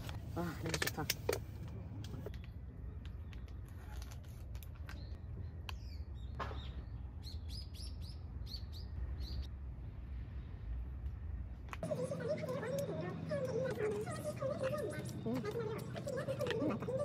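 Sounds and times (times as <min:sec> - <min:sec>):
small birds chirping: 0:04.7 - 0:09.5.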